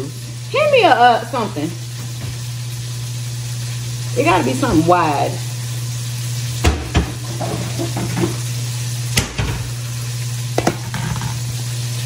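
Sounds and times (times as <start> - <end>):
bowl knocking on counter: 6.6 - 8.3, 10.6 - 11.1.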